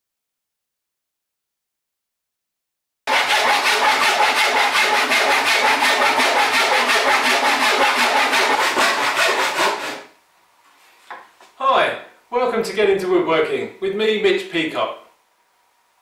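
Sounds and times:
handsaw crosscutting a board: 3.1s - 10.2s.

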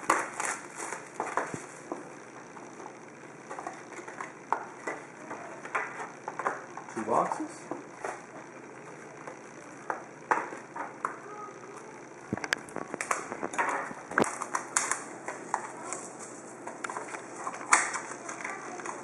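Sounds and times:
plastic wrap crinkling: 0.0s - 7.1s, 12.3s - 19.0s.

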